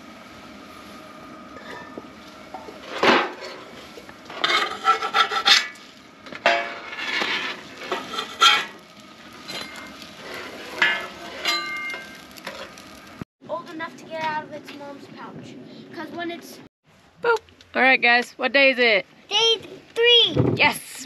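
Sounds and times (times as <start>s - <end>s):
metal spatula scraping griddle: 2.8s - 5.8s, 6.4s - 12.9s
metal lid clanking: 6.4s - 8.8s.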